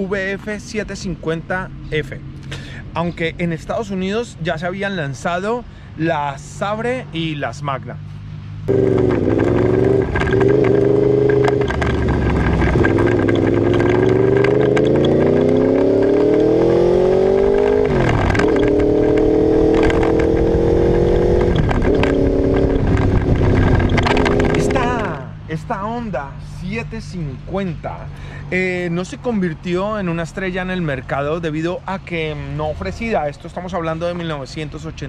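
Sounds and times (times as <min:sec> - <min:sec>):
motorcycle engine accelerating: 0:08.6 - 0:25.2.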